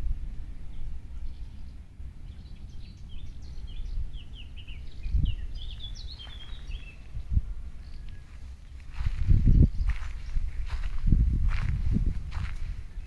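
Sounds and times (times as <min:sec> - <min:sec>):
wind buffeting microphone: 0:00.0 - 0:13.0
songbird chirping: 0:00.1 - 0:13.0.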